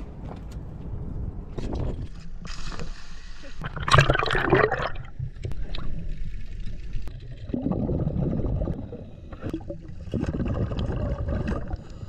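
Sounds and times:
muffled underwater bubbling rumble: 0:03.6 - 0:12.0.

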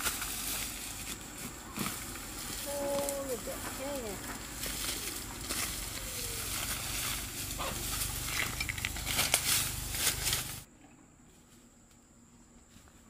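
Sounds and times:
plants and soil rustling: 0:00.0 - 0:10.7.

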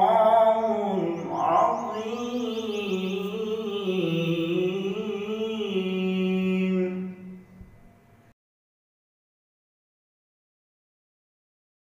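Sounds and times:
man chanting: 0:00.0 - 0:07.4.

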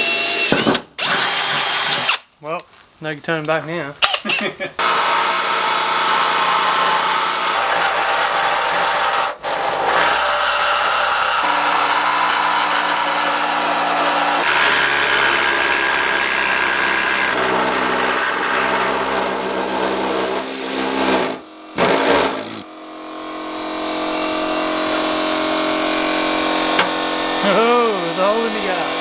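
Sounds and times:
air saw cutting steel: 0:00.0 - 0:02.2, 0:04.1 - 0:29.0
steady hum: 0:21.0 - 0:29.0.

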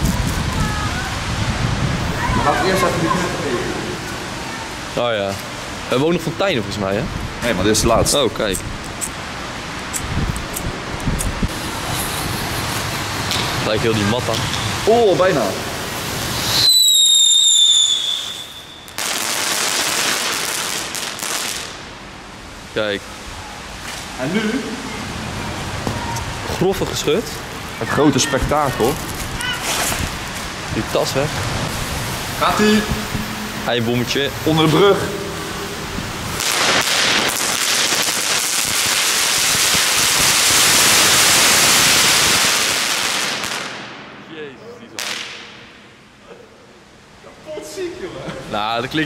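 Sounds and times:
firework crackles: 0:00.0 - 0:06.8, 0:07.4 - 0:22.2, 0:25.0 - 0:44.2, 0:44.9 - 0:45.7
hissing spray of sparks: 0:15.9 - 0:21.7, 0:36.3 - 0:43.5
firework whistle: 0:16.3 - 0:20.4.

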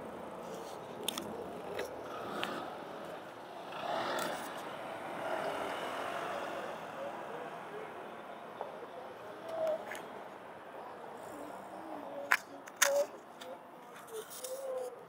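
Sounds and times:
vehicle passing close: 0:00.0 - 0:12.0
city street traffic noise: 0:00.0 - 0:15.0.

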